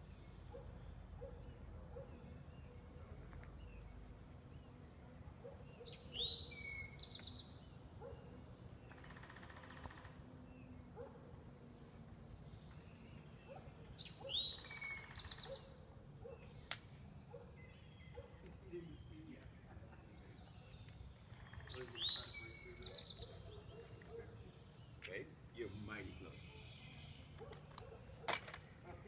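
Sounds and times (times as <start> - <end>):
songbird whistling and trilling: 5.7 - 8.2, 14.0 - 16.6.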